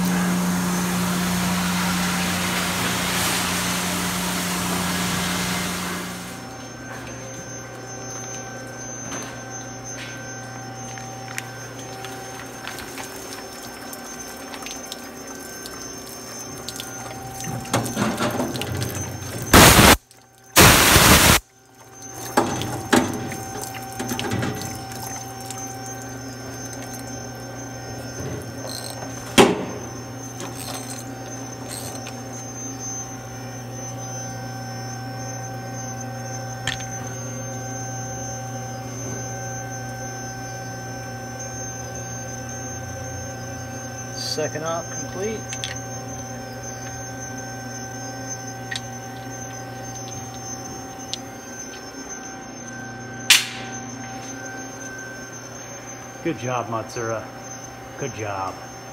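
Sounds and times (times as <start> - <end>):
steady machine hum: 0.0 - 58.9
coolant splashing over metal: 11.3 - 32.6
loud blasts of noise: 19.5 - 20.0, 20.6 - 21.4.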